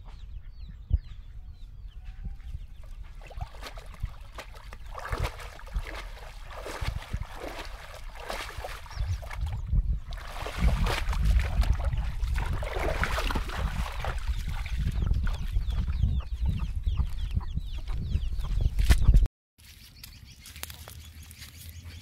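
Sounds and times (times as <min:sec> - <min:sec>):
water splashing from wading: 0:03.1 - 0:15.5.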